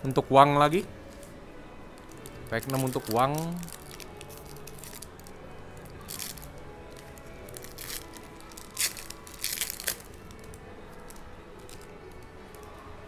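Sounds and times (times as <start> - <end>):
foil wrapper tearing and crinkling: 2.2 - 5.2, 6.0 - 11.9.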